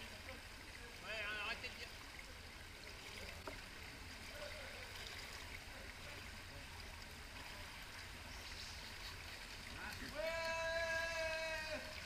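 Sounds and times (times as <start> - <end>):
faint pool water sounds: 0.0 - 12.0.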